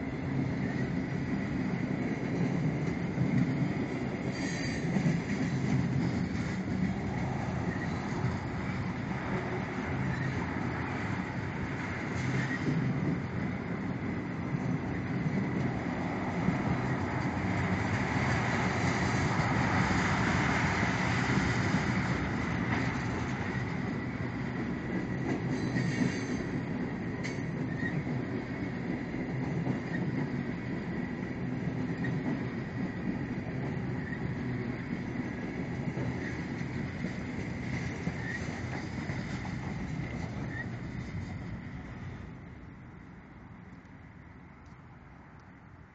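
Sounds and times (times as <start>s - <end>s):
train wheels clattering over rail joints: 0.8s - 13.4s, 14.2s - 41.6s
high wheel squeal: 25.5s - 26.5s.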